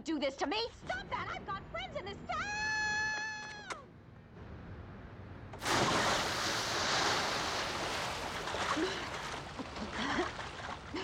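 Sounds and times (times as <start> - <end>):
loud splash into pool: 5.6 - 9.8
water churning and sloshing: 5.6 - 11.0.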